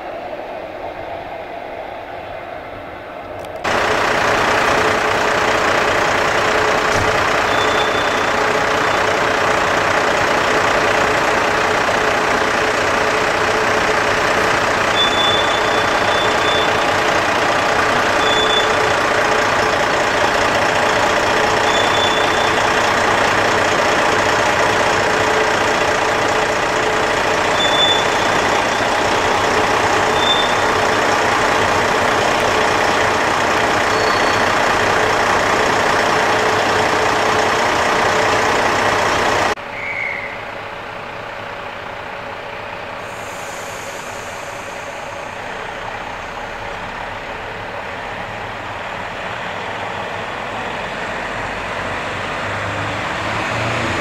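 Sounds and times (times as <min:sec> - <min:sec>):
diesel locomotive engine: 0:00.0 - 0:54.0
short high squeals: 0:07.4 - 0:09.1, 0:14.9 - 0:17.0, 0:18.1 - 0:19.0, 0:21.6 - 0:22.7, 0:27.4 - 0:29.4, 0:30.0 - 0:31.0, 0:33.8 - 0:34.7.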